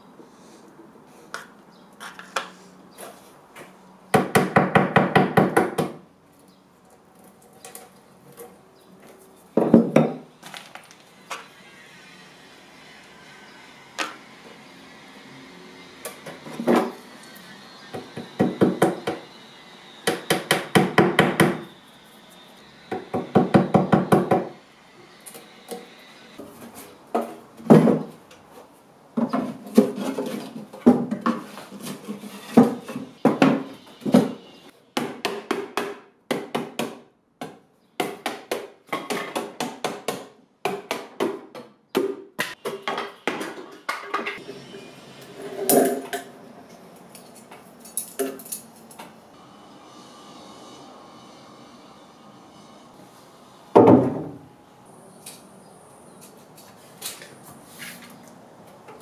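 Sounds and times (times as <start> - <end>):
hand tools knocking and scraping: 7.2 - 11.6, 15.9 - 19.4, 20.0 - 21.7, 22.9 - 24.6, 25.2 - 36.9, 38.0 - 49.2.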